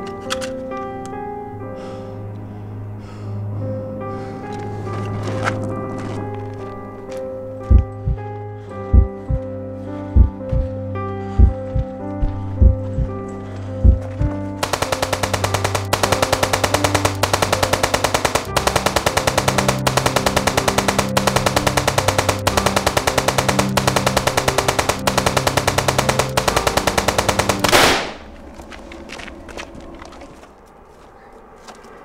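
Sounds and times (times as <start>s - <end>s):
tense film music: 0.0s - 32.0s
handgun shot: 14.6s - 28.3s.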